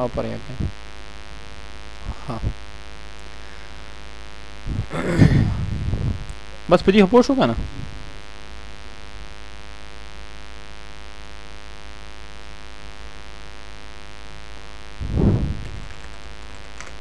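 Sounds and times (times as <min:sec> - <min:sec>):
electrical mains hum: 0:00.0 - 0:17.0
low rumble: 0:15.0 - 0:16.0.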